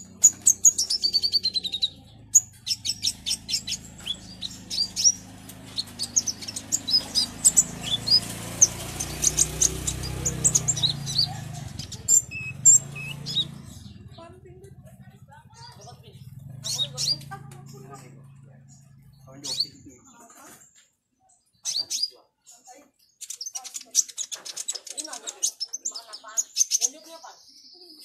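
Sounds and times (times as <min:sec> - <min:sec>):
sunbird calling: 0:00.0 - 0:20.2.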